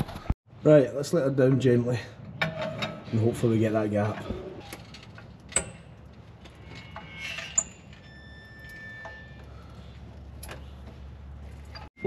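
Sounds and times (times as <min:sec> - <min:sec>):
faint high squeal: 0:06.6 - 0:09.9.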